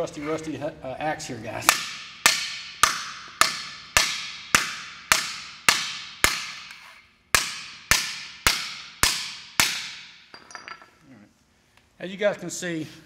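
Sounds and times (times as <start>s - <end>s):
axe striking a metal plate: 1.7s - 10.2s.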